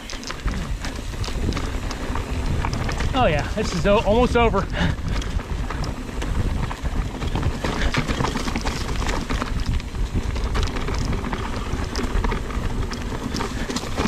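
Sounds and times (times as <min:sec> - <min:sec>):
bike rattling: 0:00.0 - 0:14.0
bike tyres crunching over gravel: 0:00.0 - 0:14.0.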